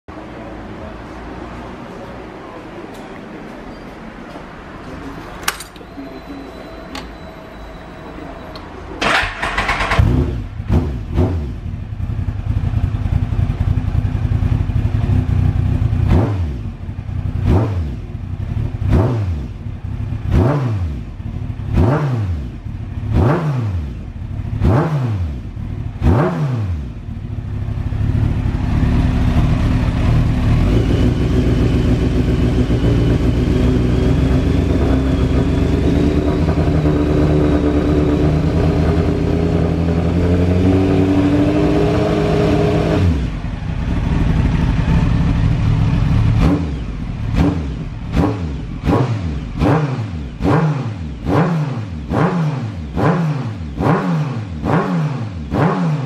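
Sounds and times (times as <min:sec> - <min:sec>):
motorcycle engine idling: 0:09.0 - 0:18.9, 0:26.9 - 0:41.4, 0:43.2 - 0:49.6
motorcycle engine revving: 0:09.0 - 0:56.0.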